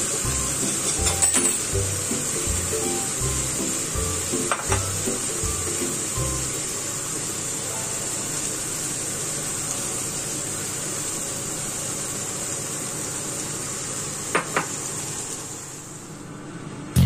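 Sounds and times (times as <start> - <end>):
shrimp sizzling in a pan: 0.0 - 16.0.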